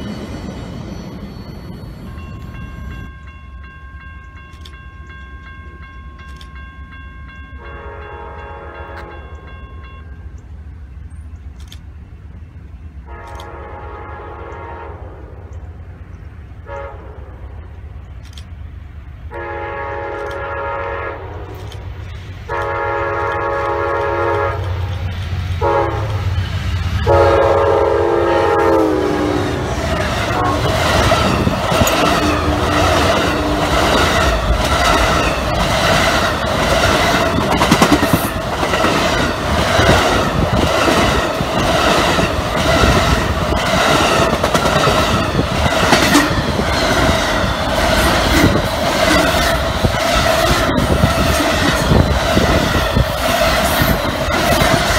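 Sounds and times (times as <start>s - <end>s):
diesel locomotive passing: 0.0s - 54.9s
train rumble: 0.0s - 54.9s
train horn blasts: 7.6s - 9.4s, 13.0s - 15.6s, 16.6s - 17.6s, 19.3s - 21.7s, 22.5s - 24.9s, 25.6s - 26.4s, 27.0s - 34.1s.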